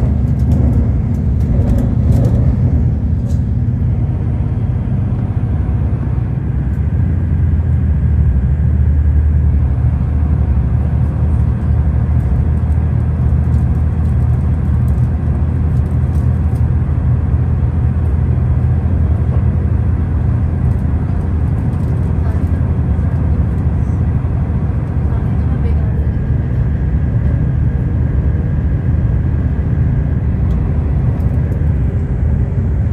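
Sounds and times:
train rumbling: 0.0 - 32.9.

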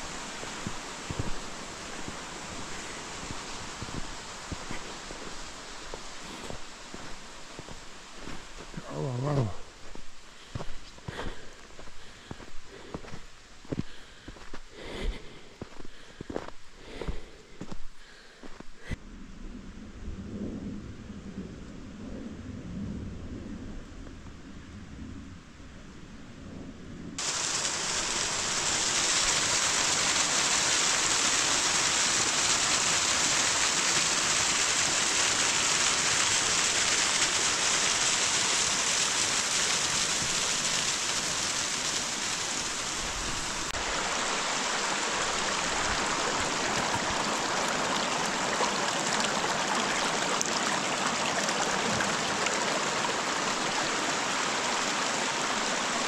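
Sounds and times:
brook running over rocks: 0.0 - 18.8, 27.2 - 56.0.

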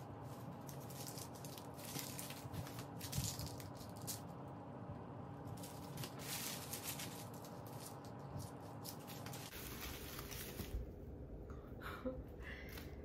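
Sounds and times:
rustling and crinkling wrapping: 0.0 - 4.6, 5.4 - 11.0
faint steady hum: 0.0 - 13.0.

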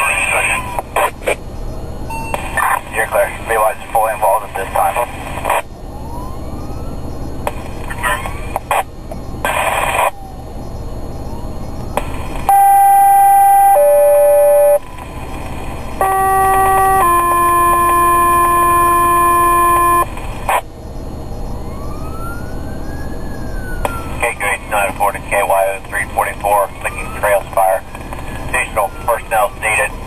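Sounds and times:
siren wailing: 5.8 - 8.8, 9.5 - 15.1, 16.0 - 20.1, 21.4 - 30.0
two-tone paging tones: 12.5 - 14.8.

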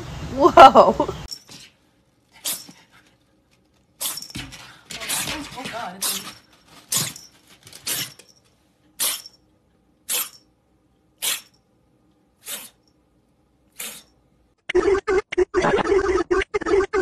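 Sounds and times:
kitten sneezing: 9.0 - 9.3, 10.1 - 10.4, 11.2 - 11.5, 12.4 - 12.8, 13.7 - 14.1.

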